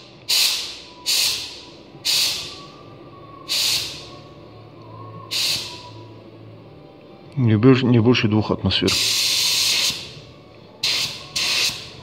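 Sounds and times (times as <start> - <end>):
spray gun air hissing: 0.3 - 2.6, 3.5 - 4.1, 5.3 - 5.9, 8.9 - 10.2, 10.8 - 12.0.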